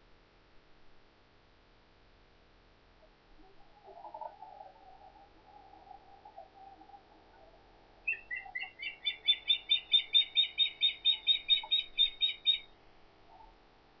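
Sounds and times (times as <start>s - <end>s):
bird whistled calls: 8.0s - 12.7s.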